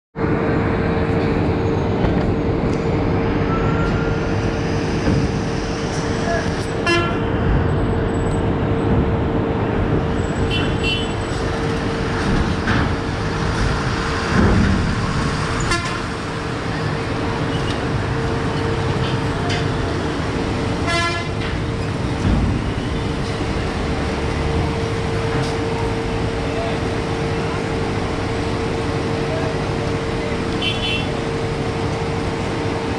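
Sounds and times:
coach engine running: 0:00.2 - 0:32.9
engines rumbling: 0:00.2 - 0:32.9
vehicle horn honks: 0:06.8 - 0:07.2, 0:10.5 - 0:11.1, 0:15.7 - 0:16.1, 0:20.8 - 0:21.3, 0:30.6 - 0:31.1.

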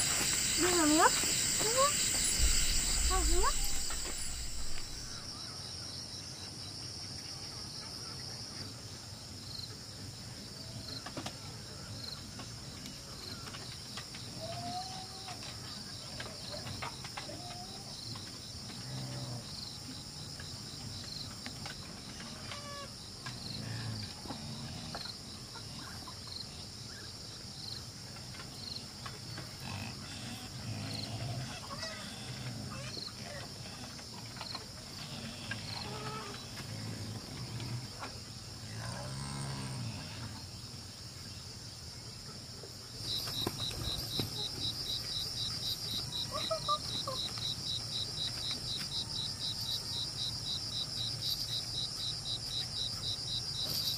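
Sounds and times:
insects buzzing: 0:00.0 - 0:05.5, 0:42.8 - 0:53.9
faint chirps and animal calls: 0:00.0 - 0:06.0, 0:29.6 - 0:37.8, 0:42.2 - 0:53.9.

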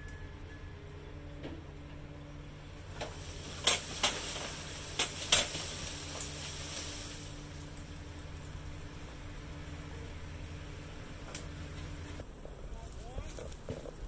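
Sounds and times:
branch and leaves rustling: 0:02.9 - 0:14.0.

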